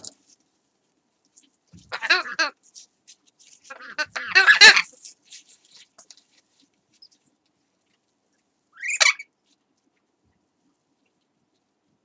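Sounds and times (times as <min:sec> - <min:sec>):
parrot squawking: 0:01.9 - 0:02.6, 0:03.7 - 0:04.9, 0:08.8 - 0:09.3.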